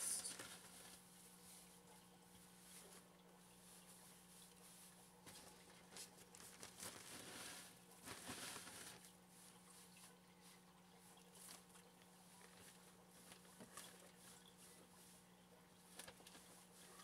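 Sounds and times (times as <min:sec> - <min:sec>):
wood shavings rustling: 0:04.7 - 0:09.1.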